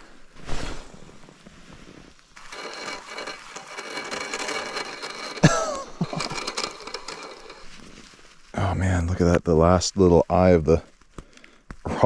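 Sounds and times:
fishing reel cranking and grinding: 2.4 - 8.0.

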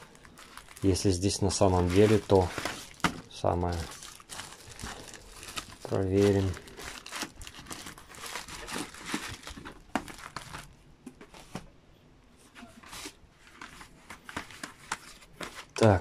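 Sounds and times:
plastic wrapping crinkling: 0.0 - 11.6
cardboard boxes rustling and knocking: 1.8 - 3.2.

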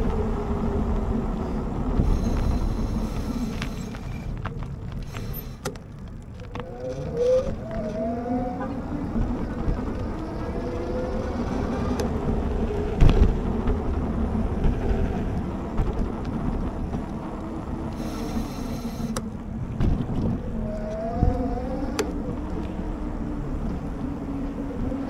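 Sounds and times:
tyres rolling on pavement: 0.0 - 25.0
wind rumble on microphone: 0.0 - 25.0
electric motor whine: 17.9 - 19.3.

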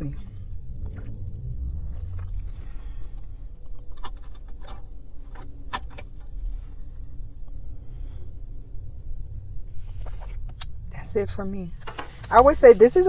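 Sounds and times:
low rumble in car cabin: 0.0 - 13.0.

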